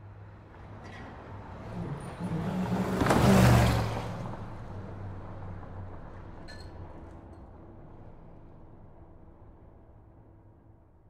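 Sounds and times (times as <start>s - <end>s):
car speeding past: 1.4s - 5.9s.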